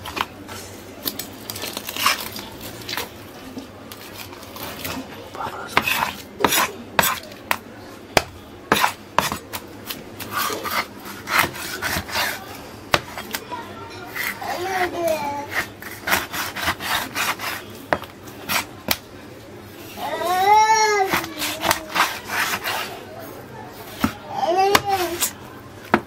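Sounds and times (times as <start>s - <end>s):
knife scraping fish: 1.1s - 3.1s, 5.7s - 7.4s, 8.7s - 13.4s, 14.1s - 18.7s, 21.0s - 23.0s, 23.8s - 25.4s.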